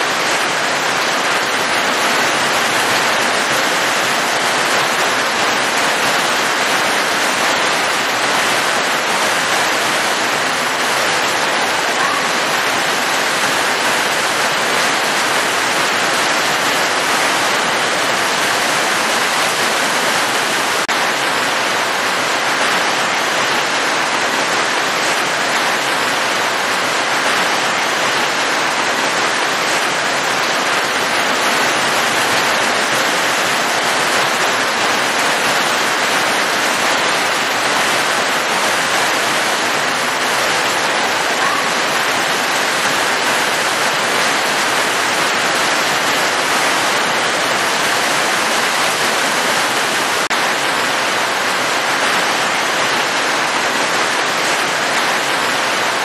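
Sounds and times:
rain falling steadily: 0.0 - 56.0.

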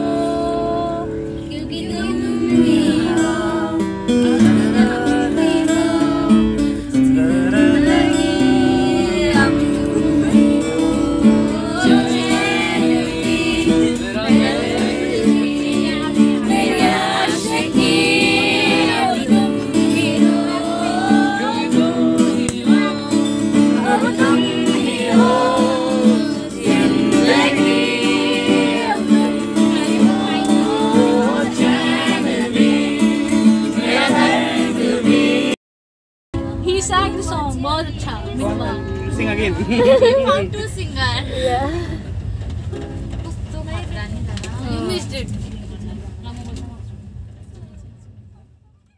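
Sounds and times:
acoustic guitar strumming: 0.0 - 35.6, 36.4 - 40.8, 42.2 - 43.9
man singing: 7.0 - 17.0, 18.7 - 31.9.

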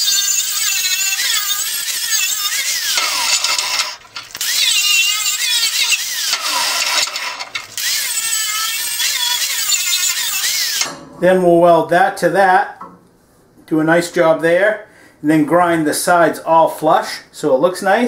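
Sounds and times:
angle grinder wire wheel whine: 0.0 - 11.0.

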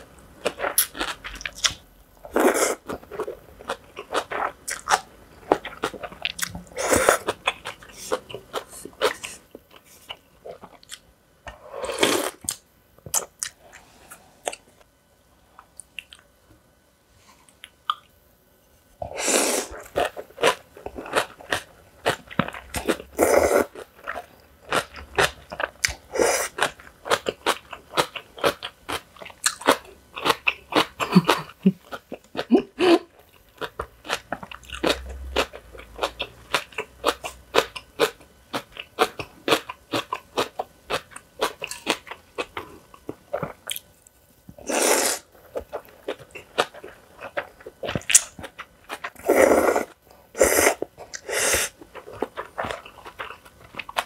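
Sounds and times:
crunchy chewing: 50.7 - 54.0.

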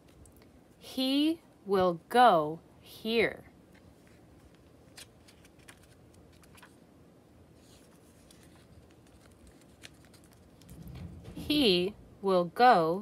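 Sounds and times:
book pages turning: 3.7 - 6.8, 7.6 - 10.8.

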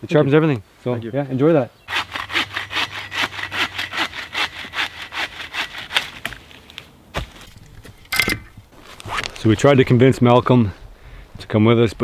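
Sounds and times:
hand saw cutting wood: 1.9 - 6.4.

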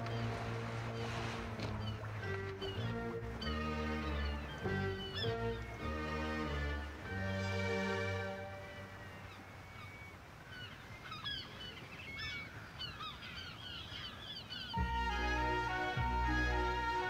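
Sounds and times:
orchestral music: 0.0 - 9.2, 14.8 - 17.0
sea waves washing: 0.0 - 11.8
gulls crying: 0.0 - 17.0.

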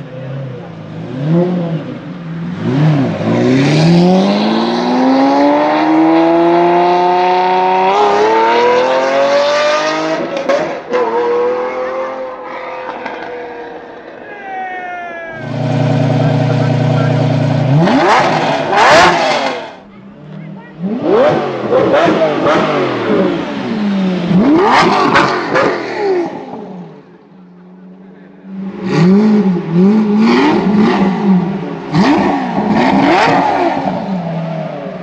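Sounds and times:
sports car engine revving: 0.0 - 14.2, 15.3 - 35.0.

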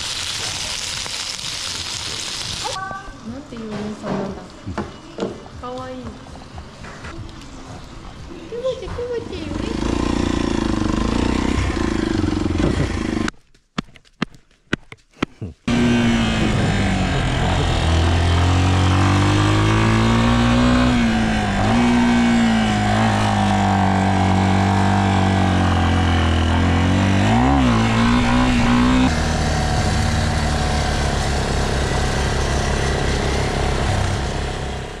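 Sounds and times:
wind and road noise: 8.0 - 13.3, 15.7 - 35.0
motorcycle engine running: 9.0 - 13.3, 15.7 - 35.0.

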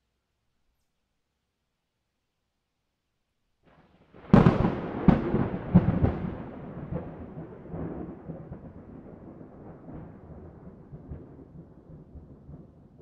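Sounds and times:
rolling thunder rumble: 4.1 - 13.0
thunder cracks: 4.1 - 13.0.

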